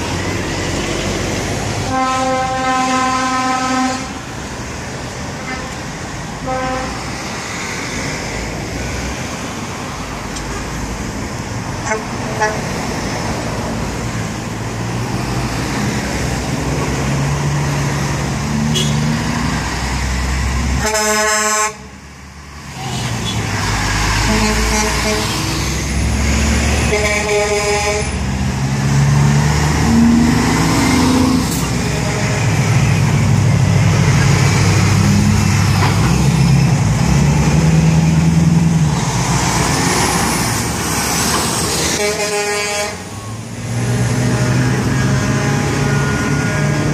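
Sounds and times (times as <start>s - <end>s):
truck diesel engines running: 0.0s - 46.9s
truck air horn blasts: 1.8s - 4.2s, 5.4s - 5.8s, 6.4s - 7.1s, 11.8s - 12.7s, 18.7s - 19.1s, 20.8s - 21.9s, 24.2s - 25.6s, 26.8s - 28.2s, 41.9s - 43.3s, 44.2s - 46.9s.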